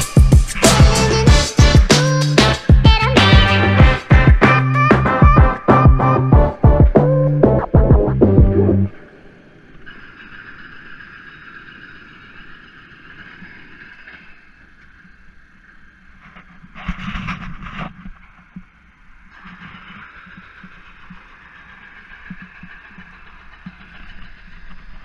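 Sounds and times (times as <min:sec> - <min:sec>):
loud rush of noise: 0:00.0 - 0:14.2
boat engine humming: 0:00.0 - 0:16.7.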